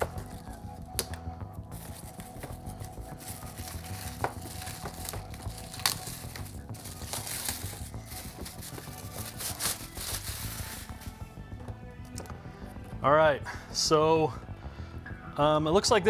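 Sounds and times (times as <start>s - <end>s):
plastic bag crinkling: 3.0s - 11.1s.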